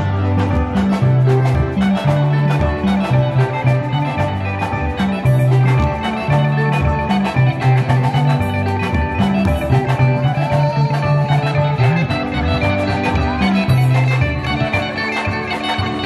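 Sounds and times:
drum kit beat: 0:00.0 - 0:16.0
electric bass: 0:00.0 - 0:16.0
electric guitar: 0:00.0 - 0:16.0.

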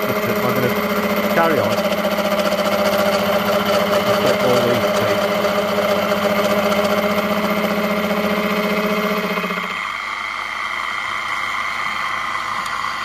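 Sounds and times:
gear cutter chatter: 0:00.0 - 0:08.0
milling machine humming: 0:00.0 - 0:13.0.

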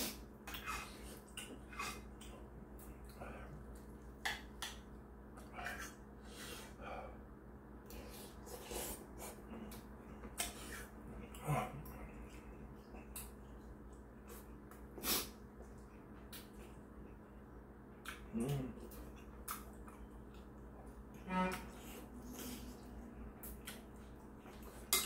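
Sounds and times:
chewing: 0:07.9 - 0:20.8, 0:22.2 - 0:25.0.

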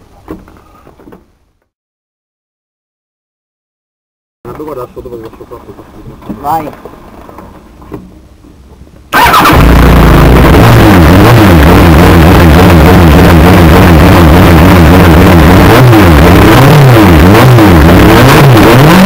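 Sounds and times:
race car engine revving: 0:09.1 - 0:19.0.

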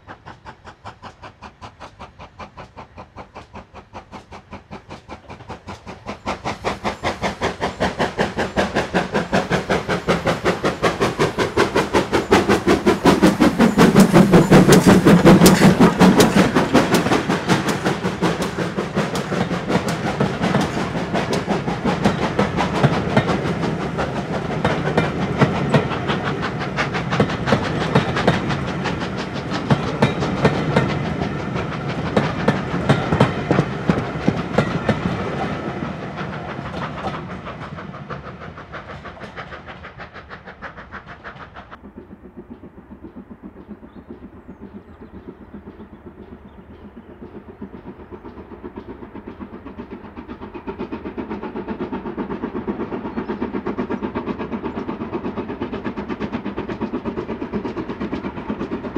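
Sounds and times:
steam locomotive chuffing: 0:00.0 - 0:58.9
train wheels clattering over rail joints: 0:00.0 - 0:58.9.

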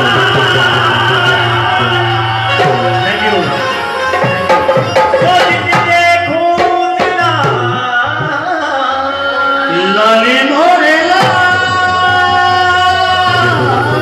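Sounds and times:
hand drums beating: 0:00.0 - 0:07.8, 0:11.1 - 0:14.0
harmonium chords: 0:00.0 - 0:14.0
person singing: 0:00.0 - 0:14.0.

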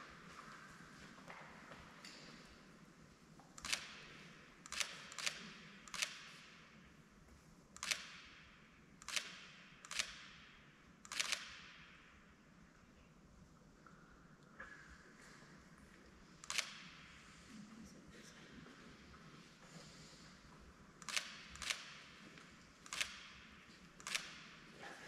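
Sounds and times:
camera shutters clicking: 0:03.6 - 0:06.6, 0:07.8 - 0:08.3, 0:09.0 - 0:10.4, 0:11.1 - 0:11.7, 0:16.4 - 0:16.9, 0:21.0 - 0:22.2, 0:22.8 - 0:24.6.

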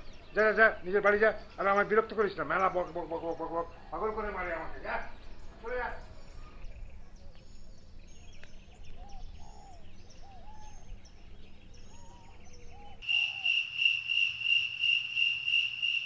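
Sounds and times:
bird calls and chirps: 0:00.0 - 0:16.0
crickets chirping: 0:13.0 - 0:16.0.

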